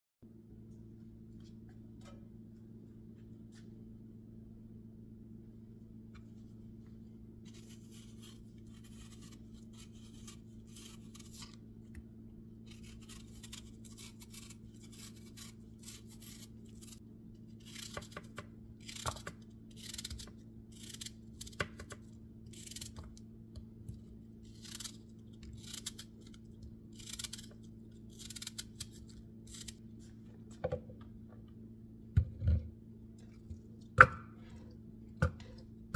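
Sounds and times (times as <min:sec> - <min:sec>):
knife peeling apple skin: 0:07.5 - 0:11.7, 0:12.6 - 0:23.2, 0:23.8 - 0:29.8.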